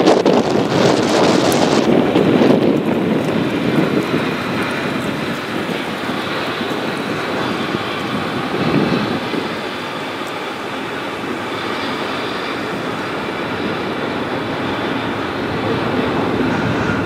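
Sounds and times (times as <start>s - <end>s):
train cars rumbling over bridge: 0.0s - 17.0s.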